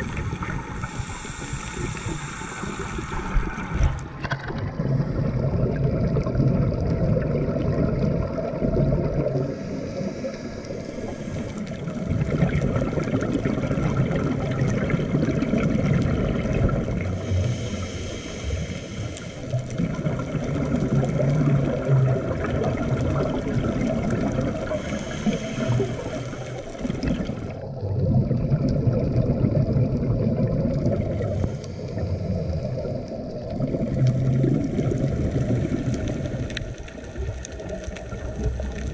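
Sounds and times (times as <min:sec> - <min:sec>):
scuba regulator bubbles: 0:00.0 - 0:38.9
underwater rumble: 0:00.0 - 0:38.9.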